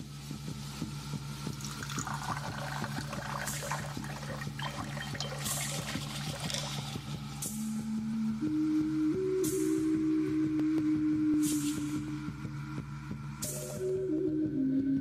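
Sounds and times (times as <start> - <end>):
liquid pouring into a glass: 1.5 - 7.1.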